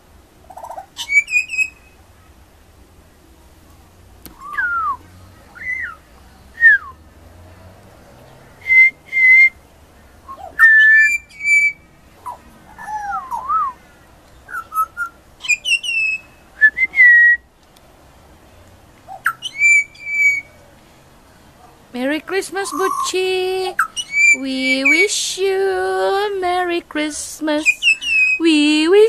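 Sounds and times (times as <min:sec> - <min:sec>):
bird singing whistled notes: 0:00.5 - 0:02.0, 0:04.3 - 0:05.0, 0:05.6 - 0:07.0, 0:08.6 - 0:09.6, 0:10.2 - 0:17.5, 0:19.1 - 0:20.6, 0:23.8 - 0:25.1, 0:27.6 - 0:28.6.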